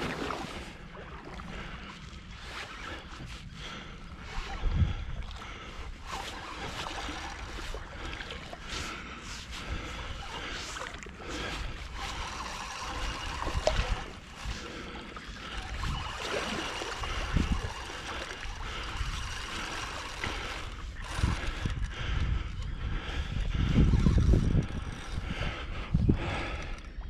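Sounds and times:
water splashing and trickling: 0:06.0 - 0:21.0.

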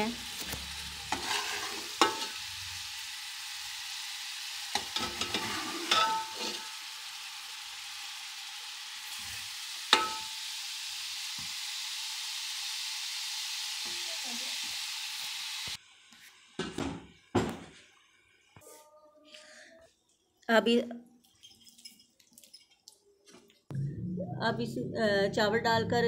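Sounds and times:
food sizzling in a pot: 0:00.0 - 0:18.6
spoon scraping pot: 0:01.1 - 0:02.3, 0:04.9 - 0:06.7
spoon clinking against metal pot: 0:04.8 - 0:06.5, 0:10.0 - 0:10.4.

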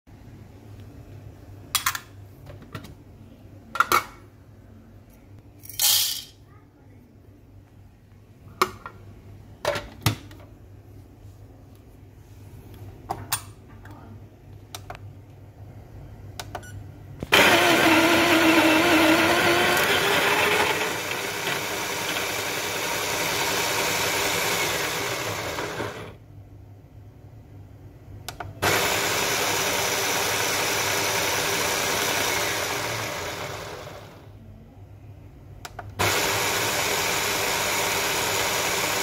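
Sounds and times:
coffee grinder grinding beans: 0:17.3 - 0:26.2, 0:28.6 - 0:34.2, 0:36.0 - 0:39.0.

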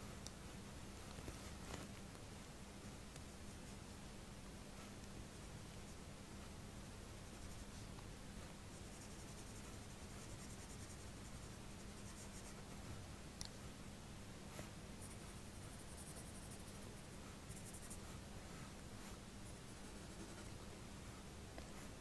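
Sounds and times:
low steady hum: 0:00.0 - 0:22.0
pencil scratching on paper: 0:15.0 - 0:20.8.

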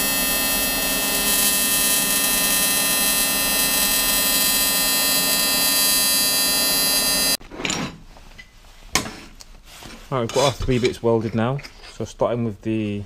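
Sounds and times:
welding arc buzzing: 0:00.0 - 0:07.4.

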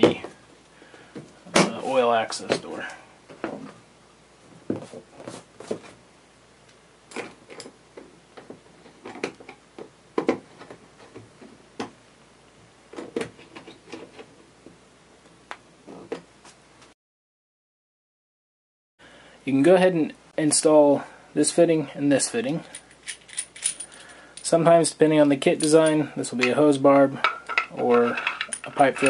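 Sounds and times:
hands handling plastic parts: 0:25.4 - 0:29.0.

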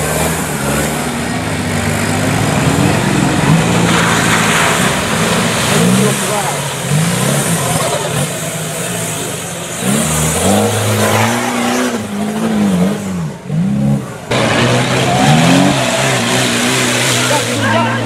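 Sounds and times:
truck engine revving hard: 0:00.0 - 0:18.0.

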